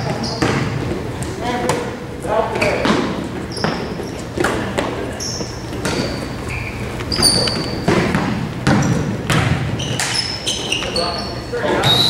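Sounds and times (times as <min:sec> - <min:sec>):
sneakers squeaking: 0:00.0 - 0:12.0
basketball bouncing: 0:05.5 - 0:06.4, 0:07.5 - 0:10.2.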